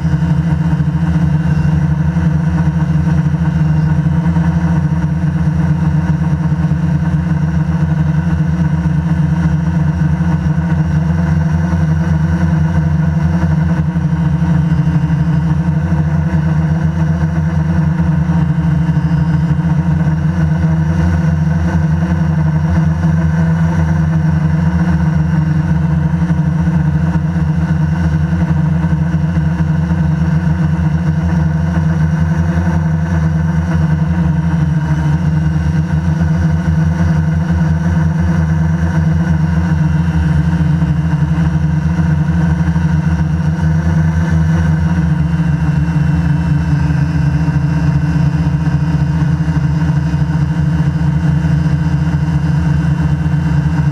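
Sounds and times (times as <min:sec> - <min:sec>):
quadcopter motors humming: 0:00.0 - 0:53.9.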